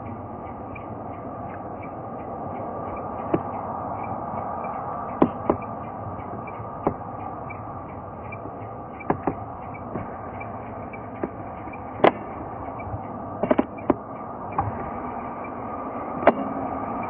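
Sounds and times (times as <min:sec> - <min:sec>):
jet engines droning: 0:00.0 - 0:17.0.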